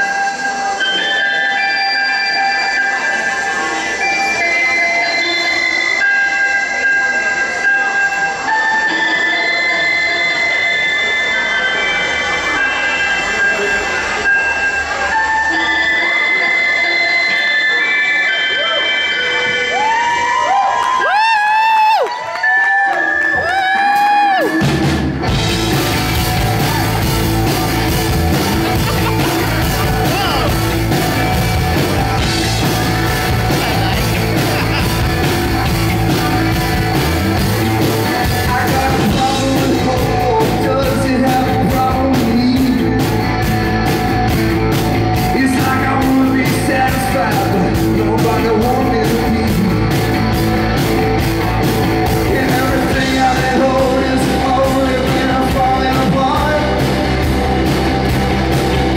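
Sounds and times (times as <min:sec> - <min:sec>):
drums: 0:23.0 - 0:58.9
electric guitars: 0:23.0 - 0:58.9
bass guitar: 0:23.2 - 0:58.9.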